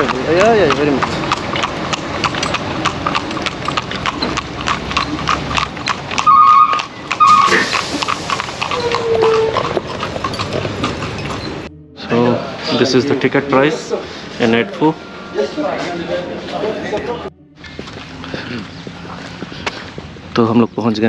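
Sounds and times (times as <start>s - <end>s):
horse hooves clip-clopping on pavement: 0.0s - 11.7s, 16.5s - 21.0s.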